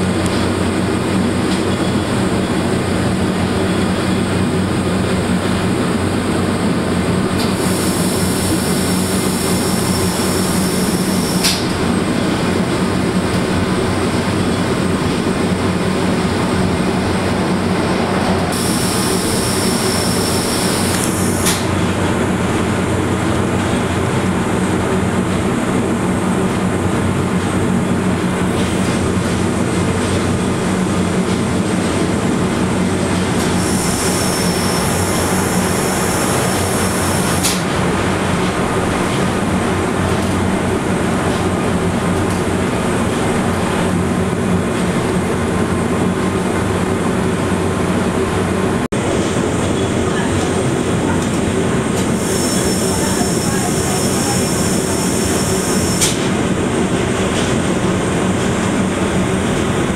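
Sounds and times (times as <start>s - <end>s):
railcar running with low drone: 0.0s - 59.9s
sharp click: 21.0s - 21.7s.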